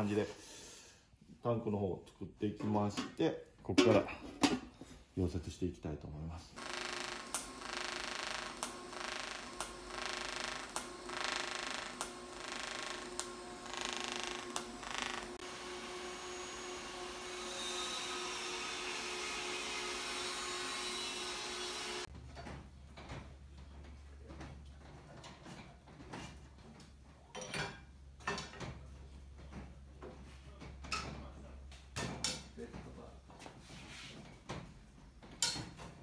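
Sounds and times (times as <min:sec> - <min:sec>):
arc welding crackling hiss: 0:06.6 - 0:15.4
welder arc strike click: 0:07.0 - 0:13.4.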